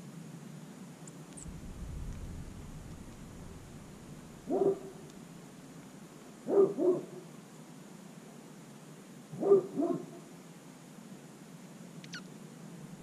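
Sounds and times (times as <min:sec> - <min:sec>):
dog barking: 0:04.5 - 0:05.0, 0:06.5 - 0:07.2, 0:09.4 - 0:10.2.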